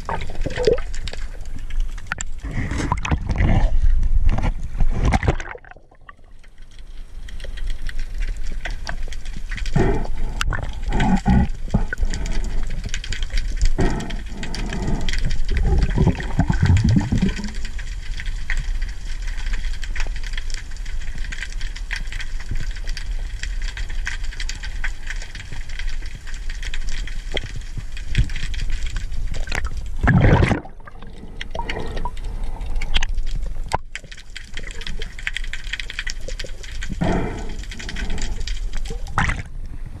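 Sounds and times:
water rushing and gurgling: 0.0s - 6.4s, 29.2s - 39.6s
underwater hiss with crackling clicks: 6.3s - 30.0s, 30.9s - 39.8s.

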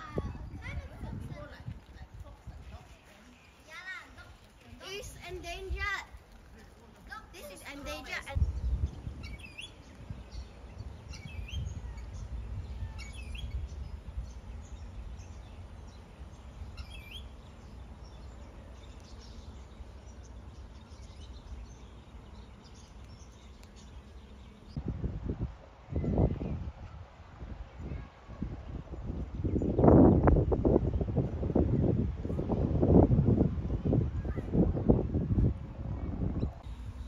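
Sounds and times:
bird chirping: 7.6s - 24.8s.

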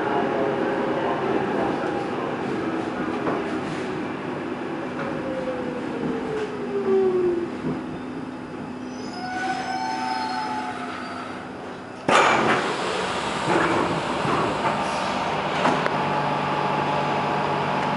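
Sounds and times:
wheel and brake squeal: 8.8s - 11.4s
train running rumble: 10.7s - 17.9s.

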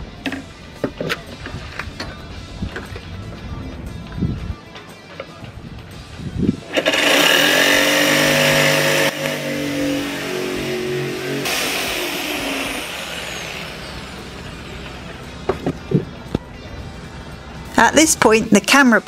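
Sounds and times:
jigsaw cutting board: 6.7s - 10.2s, 11.3s - 14.0s
buzzing jigsaw blade: 6.7s - 14.4s.

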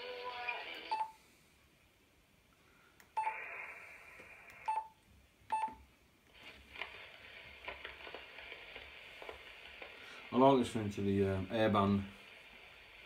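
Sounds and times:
radio receiver hiss and crackle: 3.1s - 4.8s, 6.2s - 13.0s.

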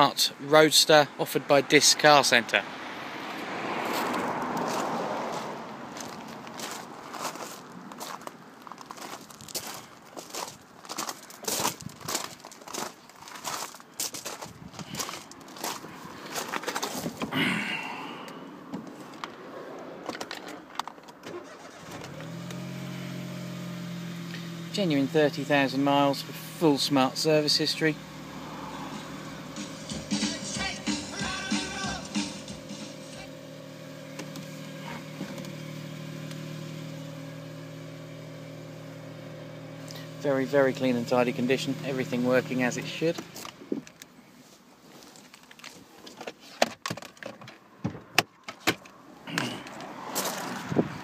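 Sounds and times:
car engine starting and idling: 0.6s - 12.9s, 14.8s - 46.2s, 46.9s - 51.0s
clicks and handling noise: 18.7s - 21.4s, 44.9s - 50.6s.

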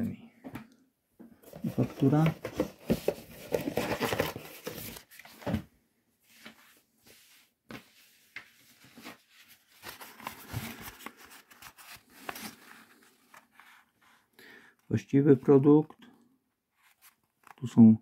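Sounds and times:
paper rustling and crinkling: 1.4s - 5.6s, 6.4s - 14.2s, 16.8s - 17.8s.

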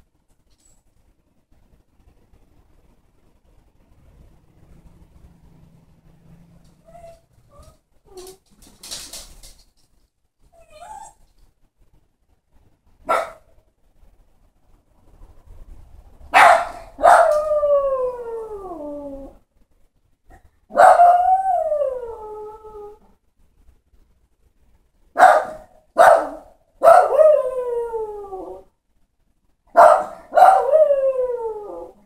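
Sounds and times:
dog barking and howling: 16.4s - 19.4s, 20.7s - 23.0s, 25.2s - 28.7s, 29.8s - 32.0s.

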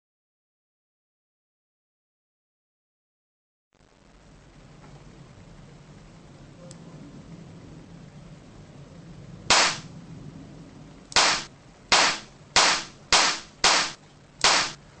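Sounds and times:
revolver gunshots: 9.5s - 9.9s, 11.2s - 14.8s.

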